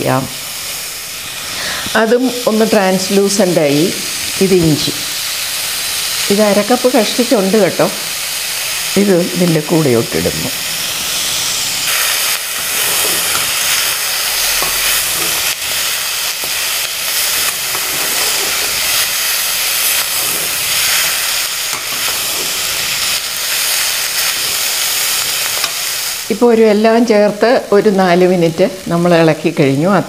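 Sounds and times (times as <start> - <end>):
food sizzling in oil: 0.0 - 30.0
metal spoon scraping and tapping pan: 12.7 - 13.6, 14.6 - 15.5, 17.4 - 18.8.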